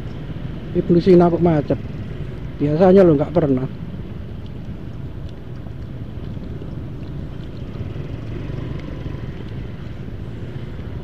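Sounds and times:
surrounding traffic: 0.0 - 11.0
scooter engine rumbling: 1.8 - 11.0.

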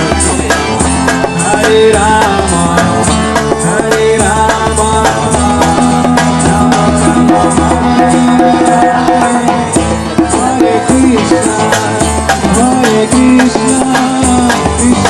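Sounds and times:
steady drum beat: 0.0 - 15.0.

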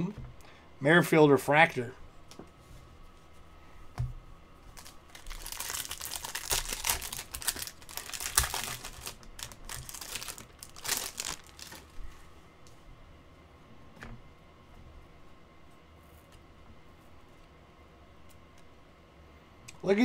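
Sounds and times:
foil wrapper tearing and crinkling: 4.8 - 11.9.

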